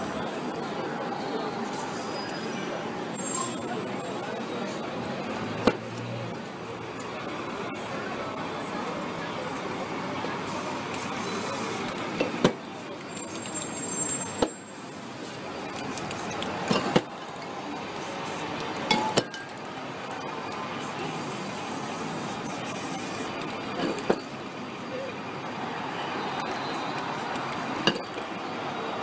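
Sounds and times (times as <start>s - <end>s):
aerosol spray paint hissing: 10.5s - 11.9s, 15.8s - 16.6s, 20.8s - 23.5s.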